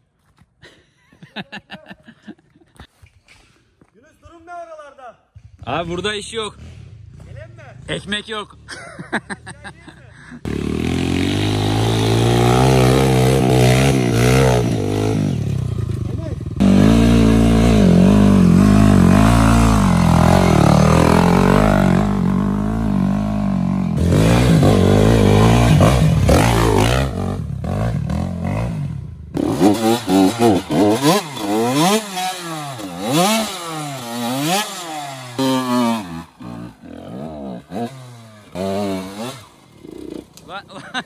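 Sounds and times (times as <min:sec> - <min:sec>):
dirt bike engine revving: 0:10.4 - 0:41.0.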